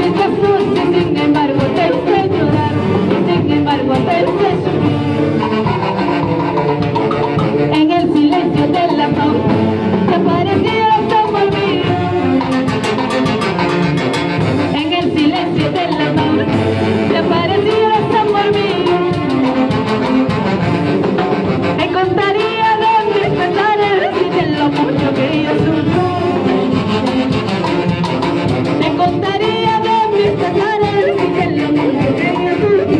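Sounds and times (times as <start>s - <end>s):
woman singing into a microphone: 0.0s - 5.1s, 7.7s - 12.7s, 14.7s - 19.4s, 21.8s - 26.9s, 28.8s - 32.9s
live band playing: 0.0s - 32.9s.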